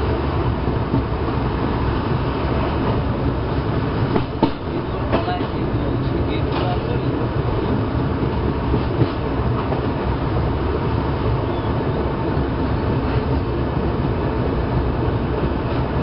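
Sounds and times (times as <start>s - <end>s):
train wheels rumbling on track: 0.0s - 16.0s.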